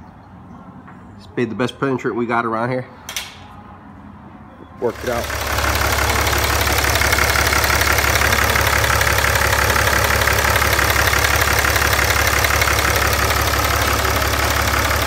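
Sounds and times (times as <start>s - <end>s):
diesel engine idling: 4.8s - 15.0s.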